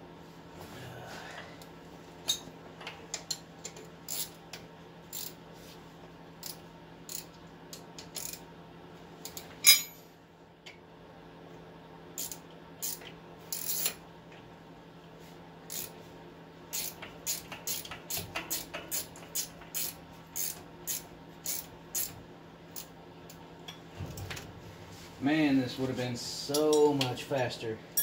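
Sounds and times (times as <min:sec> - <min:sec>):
hand ratchet clicking: 0:16.7 - 0:22.1.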